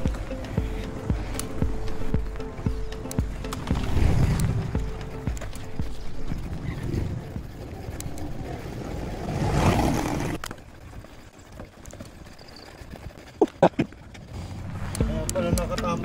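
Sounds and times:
vehicle passing: 0.0s - 10.8s, 14.1s - 16.0s
traffic: 0.0s - 16.0s.

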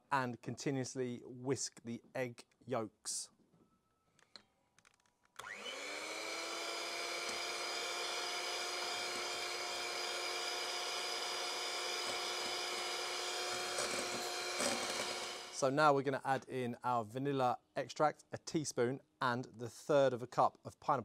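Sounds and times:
electric hand mixer whining: 5.4s - 15.6s.

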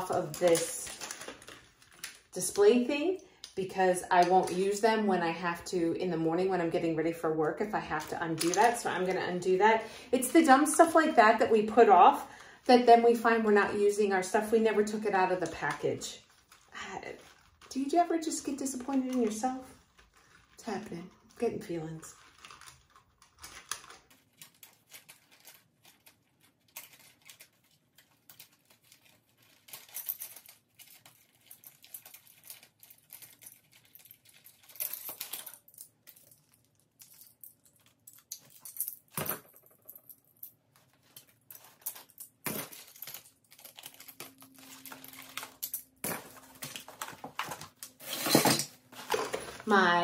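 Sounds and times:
cardboard card rustling: 14.3s - 38.0s, 40.7s - 50.0s.

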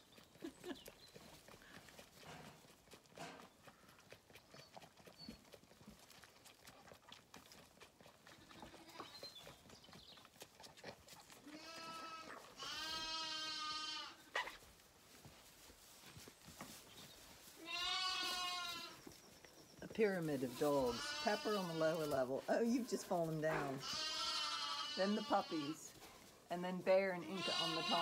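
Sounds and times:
lamb bleating: 11.4s - 14.2s, 17.6s - 19.0s, 20.8s - 22.2s, 23.5s - 25.8s, 27.2s - 28.0s.

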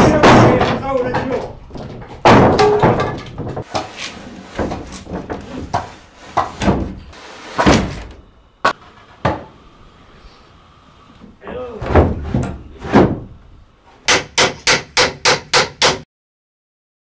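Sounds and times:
irregular knocks and thuds: 0.0s - 3.7s, 11.8s - 13.4s.

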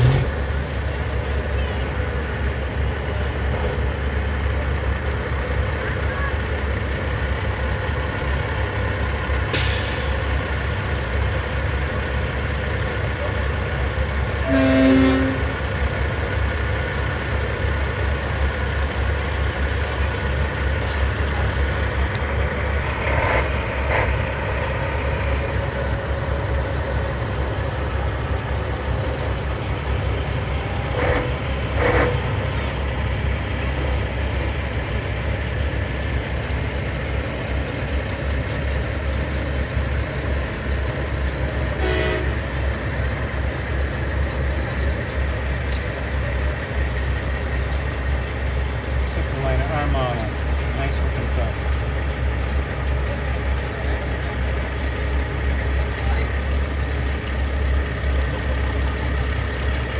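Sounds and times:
truck engines rumbling: 0.0s - 59.9s
truck horn blasts: 14.4s - 15.6s, 41.8s - 42.5s.

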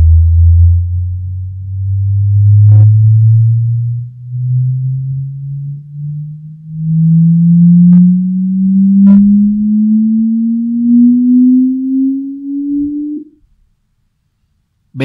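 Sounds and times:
sine sweep test tone: 0.0s - 13.6s.

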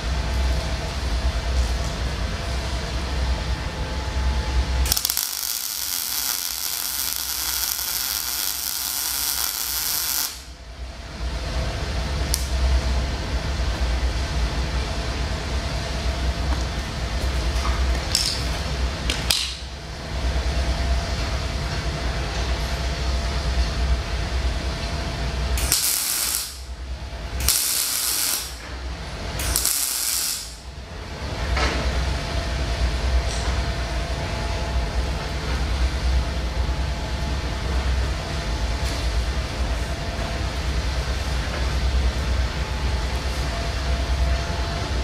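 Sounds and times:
arc welding crackling and hissing: 0.0s - 12.7s, 24.0s - 31.6s
steady low hum: 0.0s - 45.0s.

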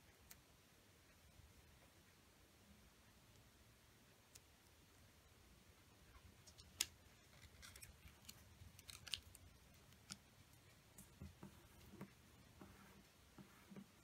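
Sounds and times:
paper crinkling: 6.4s - 10.2s
paper folding and creasing: 6.5s - 10.2s.

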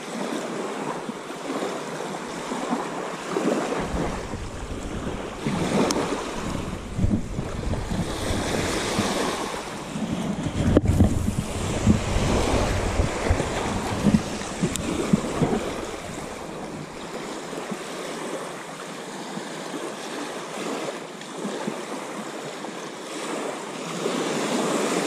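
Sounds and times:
small waves breaking: 0.0s - 25.0s
wind buffeting microphone: 1.4s - 18.7s.

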